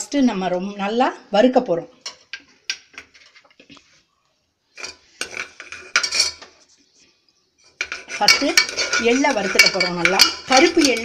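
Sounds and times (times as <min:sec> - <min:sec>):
metal kitchenware clattering: 0:02.0 - 0:03.6, 0:04.8 - 0:06.6, 0:07.7 - 0:11.0.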